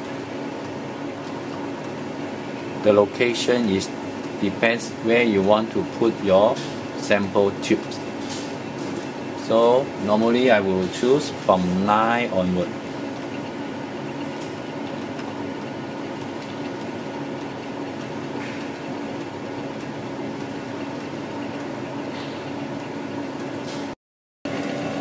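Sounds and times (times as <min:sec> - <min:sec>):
equipment and ventilation hum: 0:00.0 - 0:25.0.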